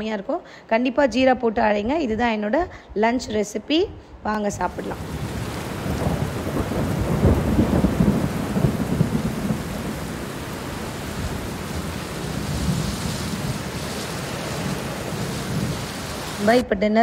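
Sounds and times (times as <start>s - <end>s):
thunder rumbling: 4.6s - 16.6s
heavy rain pouring: 4.7s - 16.6s.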